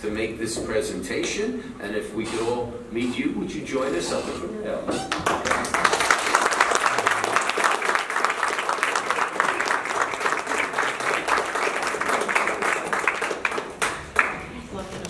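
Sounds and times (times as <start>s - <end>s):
people clapping: 5.1s - 15.0s.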